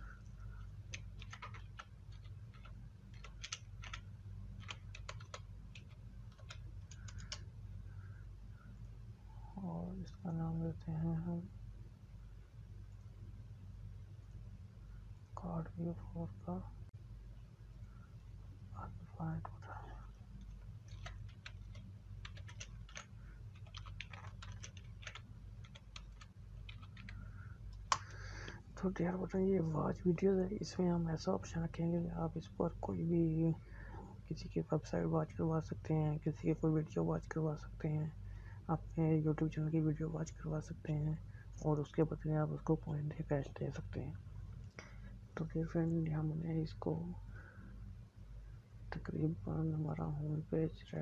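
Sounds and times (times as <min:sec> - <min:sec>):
steady low hum: 0:00.0 - 0:51.0
keyboard typing clicks: 0:00.9 - 0:04.0, 0:04.6 - 0:07.4, 0:20.4 - 0:27.2.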